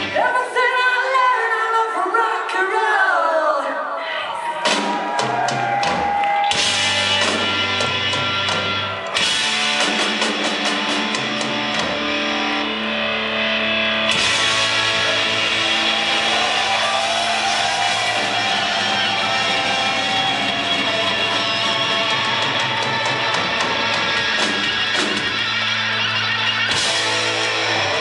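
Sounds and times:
hard rock band playing: 0:04.7 - 0:28.0.

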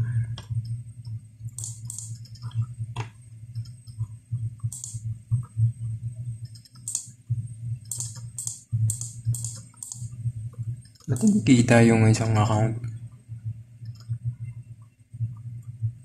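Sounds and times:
low hum: 0:00.0 - 0:16.0
mouse clicking: 0:00.3 - 0:04.1, 0:04.7 - 0:05.5, 0:06.4 - 0:07.2, 0:07.8 - 0:10.2, 0:10.8 - 0:11.5, 0:13.8 - 0:14.2.

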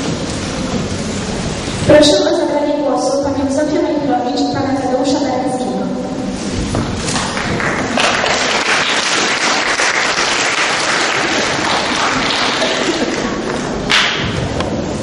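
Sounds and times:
audience applauding: 0:07.1 - 0:14.2.

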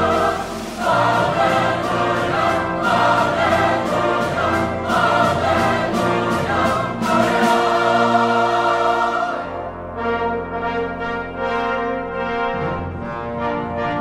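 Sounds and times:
percussion strokes: 0:00.0 - 0:09.4
mixed choir singing: 0:00.0 - 0:09.9
brass and organ accompaniment: 0:00.0 - 0:14.0.

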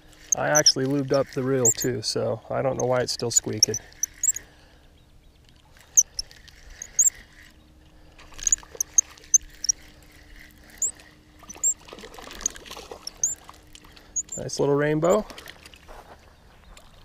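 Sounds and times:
fishing reel squeaking: 0:00.0 - 0:02.0, 0:02.7 - 0:04.5, 0:05.8 - 0:07.6, 0:08.3 - 0:13.4, 0:14.0 - 0:15.2.

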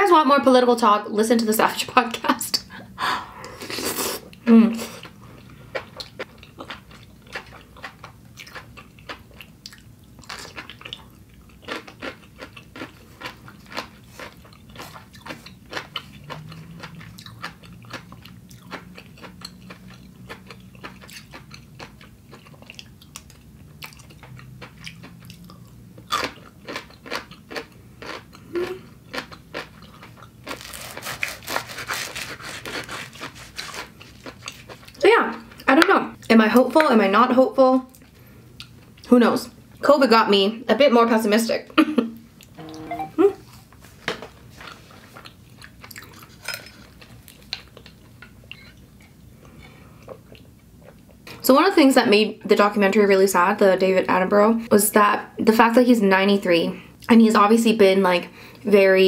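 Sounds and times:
person chewing noodles: 0:03.5 - 0:35.6, 0:44.6 - 0:51.4
knife sawing flatbread on board: 0:30.7 - 0:33.9.

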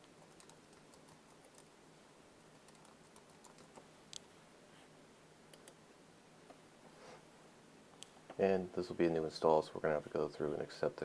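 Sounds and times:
typing on computer keyboard: 0:00.0 - 0:01.7, 0:02.5 - 0:03.8.

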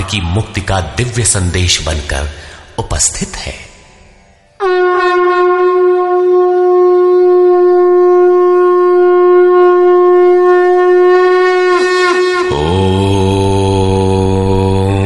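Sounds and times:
conch shell blown: 0:04.6 - 0:13.7.

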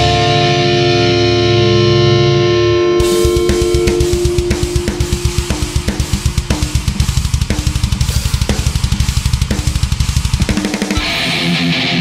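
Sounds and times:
thrash metal song: 0:00.0 - 0:12.0
rapid double bass drum: 0:03.0 - 0:11.1
snare and cymbal hits: 0:03.0 - 0:11.7.

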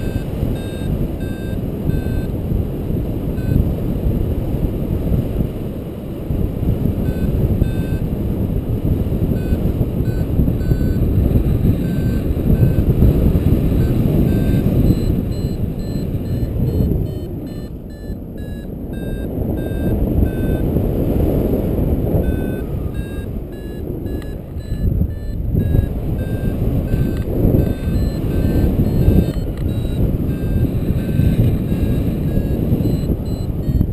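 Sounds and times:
high electronic beeps: 0:00.0 - 0:02.3, 0:07.0 - 0:08.0, 0:09.4 - 0:12.9, 0:13.7 - 0:20.6, 0:22.2 - 0:33.9
wind rush on microphone: 0:00.0 - 0:33.9.

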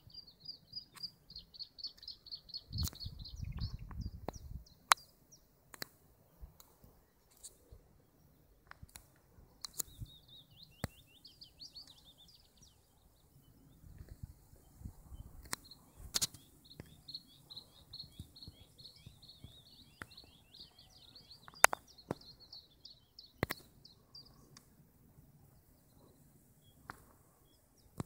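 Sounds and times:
songbird twittering: 0:00.0 - 0:05.5, 0:09.5 - 0:24.6
sharp clicks: 0:08.7 - 0:10.0, 0:15.4 - 0:17.0.

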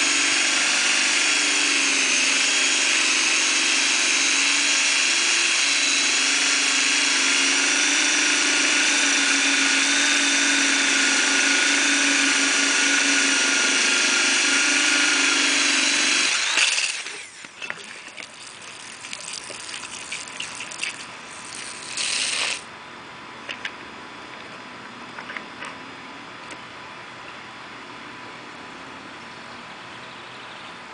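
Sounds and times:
drill cutting through paver: 0:00.0 - 0:22.7.

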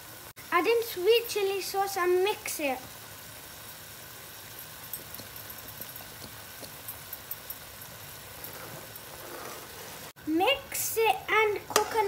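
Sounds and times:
chicken sizzling in a wok: 0:00.0 - 0:12.0
sauce bubbling pops: 0:04.9 - 0:07.6.

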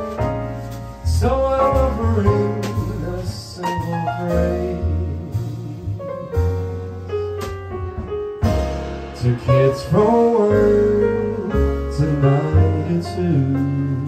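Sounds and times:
grand piano: 0:00.0 - 0:14.0
upright double bass: 0:00.0 - 0:14.0
person singing: 0:09.2 - 0:14.0.

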